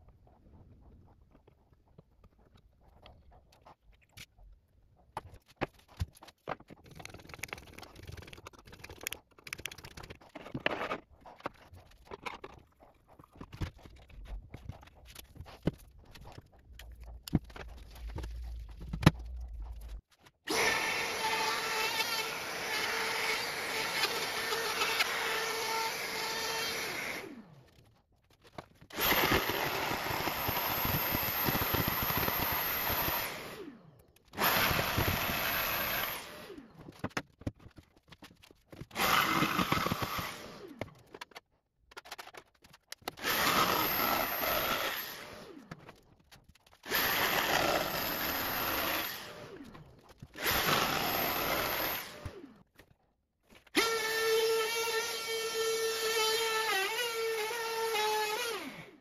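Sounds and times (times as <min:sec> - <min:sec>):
loud power tool running: 0:20.5 - 0:27.4, 0:50.4 - 0:52.4
router cutting wood: 0:20.5 - 0:27.8, 0:28.9 - 0:37.0, 0:38.9 - 0:40.9, 0:43.1 - 0:45.7, 0:46.8 - 0:49.7, 0:50.3 - 0:52.5, 0:53.8 - 0:59.0.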